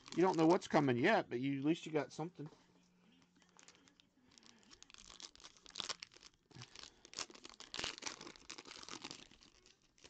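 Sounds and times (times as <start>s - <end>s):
foil wrapper crinkling and tearing: 0.0s - 0.8s, 3.4s - 10.0s.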